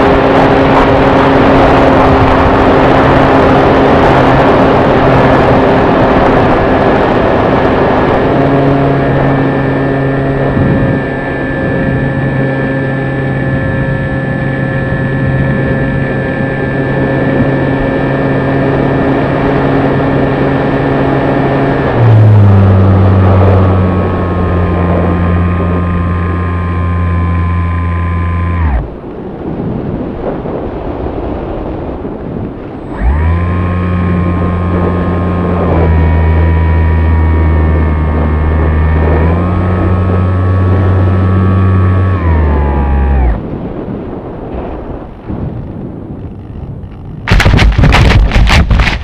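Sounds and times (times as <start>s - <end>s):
wind rushing: 0.0s - 25.8s
electric motor and propeller hum: 0.0s - 49.0s.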